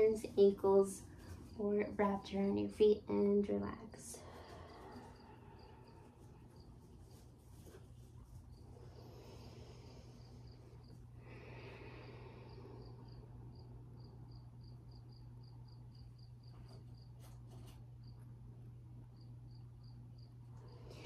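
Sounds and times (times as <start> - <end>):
insect chirping: 4.2 - 7.2, 8.4 - 17.1, 19.1 - 21.0.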